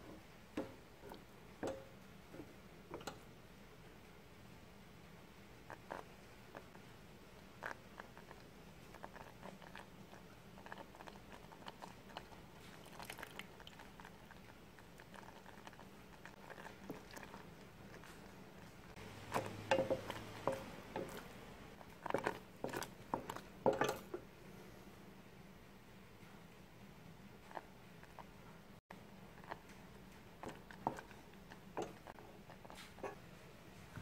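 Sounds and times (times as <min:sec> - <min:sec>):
jam popping while cooking: 0:00.0 - 0:03.3, 0:07.4 - 0:24.3, 0:29.3 - 0:33.2
spatula scraping saucepan: 0:16.3 - 0:24.2.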